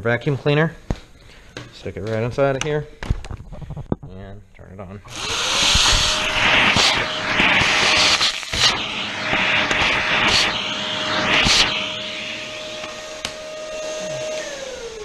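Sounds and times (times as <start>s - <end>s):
vacuum cleaner suction: 5.1s - 15.0s.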